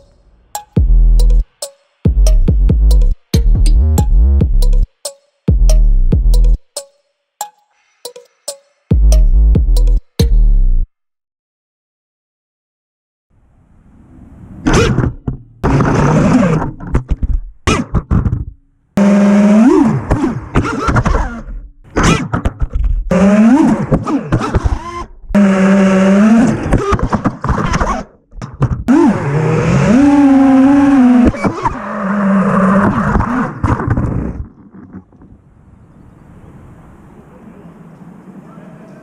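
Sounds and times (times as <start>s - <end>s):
drone motors whining: 28.9s - 34.4s.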